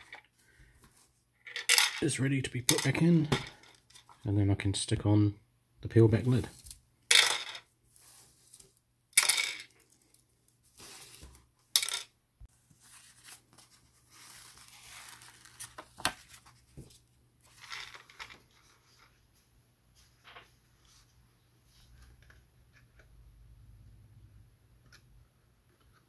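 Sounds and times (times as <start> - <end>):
paper peeling rustle: 12.8 - 16.6.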